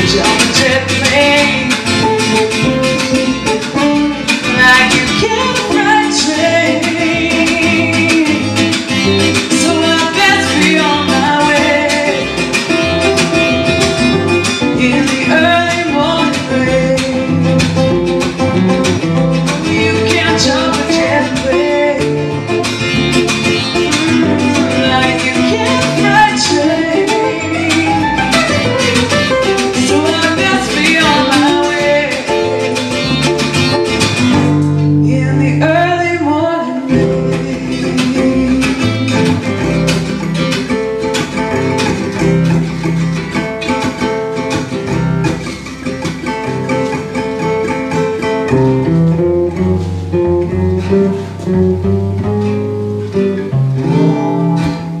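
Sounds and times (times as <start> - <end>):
woman singing: 0.0 - 13.7, 14.4 - 17.8, 19.4 - 33.6, 34.3 - 40.2
acoustic guitars and upright bass: 0.0 - 55.0.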